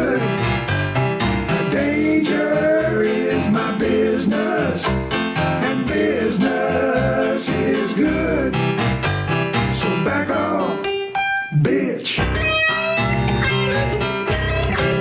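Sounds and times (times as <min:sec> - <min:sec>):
person singing: 0:00.0 - 0:00.4, 0:01.6 - 0:05.0, 0:05.6 - 0:08.6, 0:09.8 - 0:10.9
bass: 0:00.0 - 0:11.3, 0:12.2 - 0:15.0
piano: 0:00.0 - 0:15.0.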